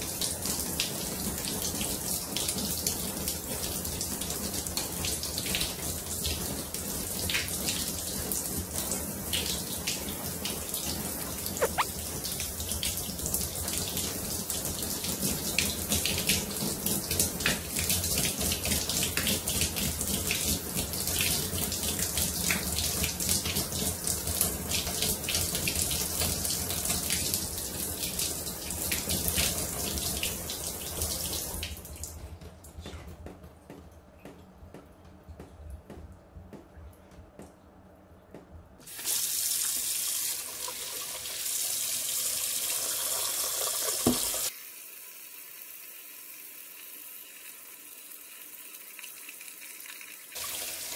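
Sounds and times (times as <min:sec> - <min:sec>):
shower spraying water: 0:00.0 - 0:31.8, 0:38.8 - 0:50.9
hands rubbing under water: 0:11.6 - 0:11.9.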